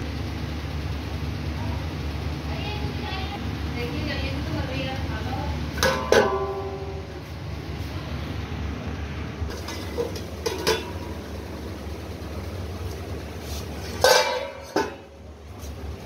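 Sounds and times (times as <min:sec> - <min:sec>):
metal lid clinking against pot: 0:05.8 - 0:06.7, 0:09.5 - 0:11.0, 0:14.0 - 0:15.0
loud metal clanks: 0:05.8 - 0:07.0, 0:09.5 - 0:11.2, 0:13.9 - 0:15.2.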